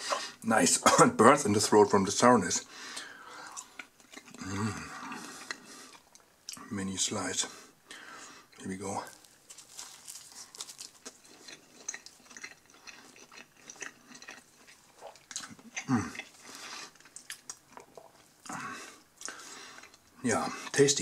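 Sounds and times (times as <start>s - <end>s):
close-up chewing: 3.4s - 6.7s, 9.0s - 20.8s.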